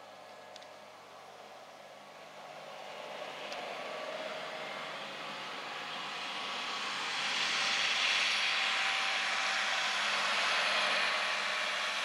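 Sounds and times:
rushing engine noise: 0:02.2 - 0:12.0.

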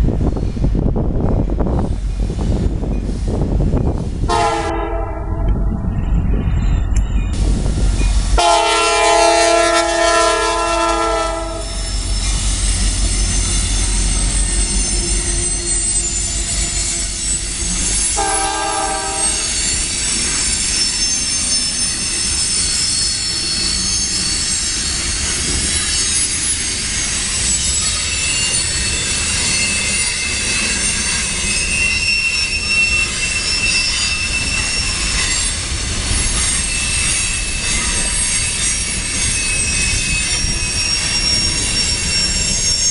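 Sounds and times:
wheels squealing on rail: 0:01.6 - 0:42.9
locomotive horn blasts: 0:04.3 - 0:05.8, 0:08.4 - 0:12.0, 0:18.1 - 0:19.5.

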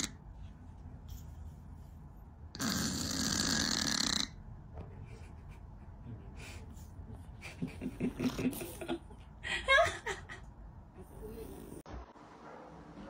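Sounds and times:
cat snoring: 0:02.6 - 0:04.4.

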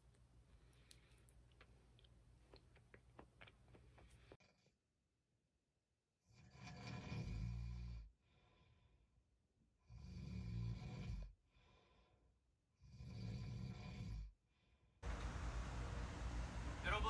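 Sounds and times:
heavy snoring: 0:06.3 - 0:08.1, 0:09.8 - 0:11.3, 0:12.8 - 0:14.3.

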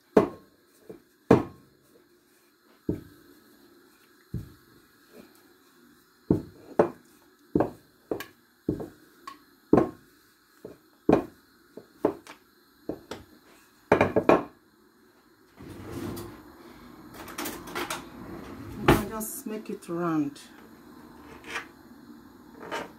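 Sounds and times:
rolling pin knocking on worktop: 0:00.2 - 0:01.6, 0:07.6 - 0:09.0, 0:09.8 - 0:10.0, 0:10.7 - 0:12.3, 0:13.9 - 0:14.5.

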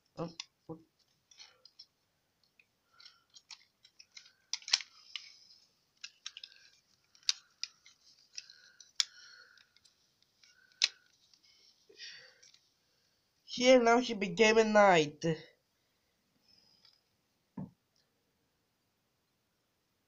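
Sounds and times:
sharp plastic snaps: 0:01.3 - 0:05.4, 0:06.0 - 0:11.2
plastic toy pieces clicking: 0:01.3 - 0:11.3.

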